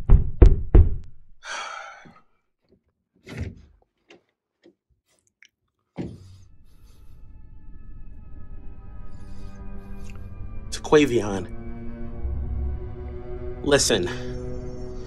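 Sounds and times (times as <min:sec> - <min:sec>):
background music: 0:06.3 - 0:15.0.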